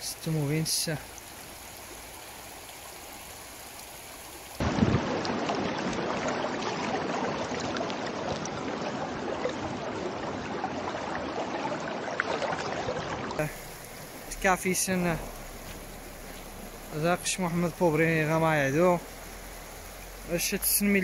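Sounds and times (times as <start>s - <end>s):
floodwater rushing: 0.0s - 21.0s.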